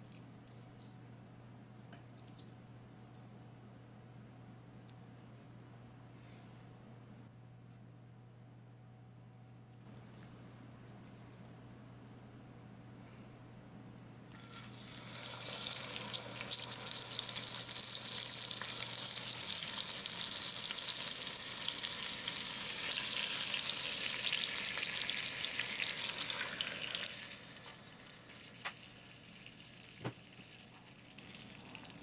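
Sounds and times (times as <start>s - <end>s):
chicken sizzling in hot oil: 14.3s - 32.0s.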